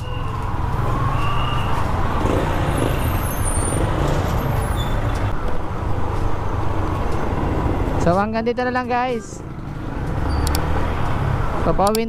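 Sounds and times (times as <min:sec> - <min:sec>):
road and wind noise: 0:00.0 - 0:12.0
motorcycle engine running: 0:02.0 - 0:04.6.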